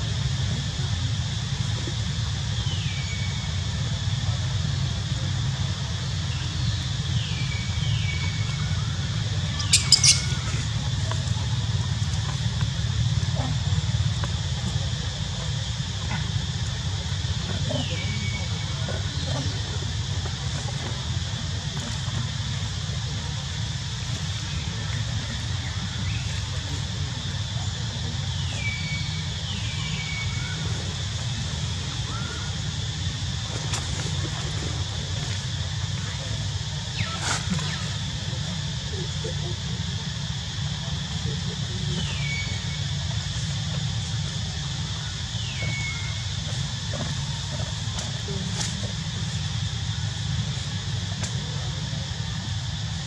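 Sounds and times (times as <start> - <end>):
steady low rumble: 3.3 - 53.0
sharp high squeaks: 9.6 - 10.6
falling whistle-like calls: 9.6 - 10.7
rising chirps: 9.6 - 10.7.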